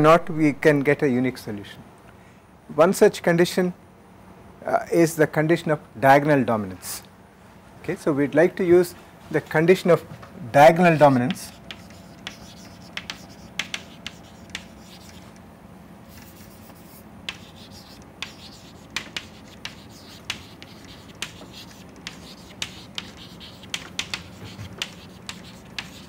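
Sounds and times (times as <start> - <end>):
chalk tapping on board: 10.7 - 15.3, 16.1 - 26.0
chalk scratching on chalkboard: 10.7 - 15.4, 16.1 - 26.0.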